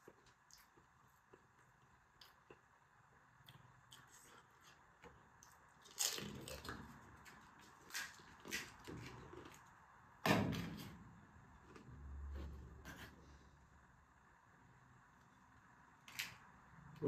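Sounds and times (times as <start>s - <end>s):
crunching while chewing: 0.0s - 9.8s
crunchy wet bite: 3.4s - 9.6s.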